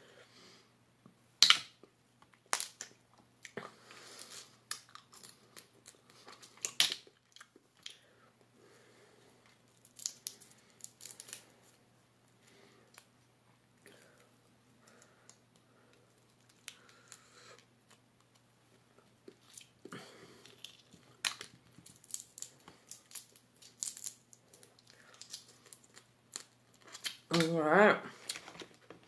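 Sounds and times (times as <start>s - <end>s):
lobster shell cracking: 2.4s - 3.0s, 4.2s - 8.0s, 9.7s - 11.5s, 20.4s - 27.5s.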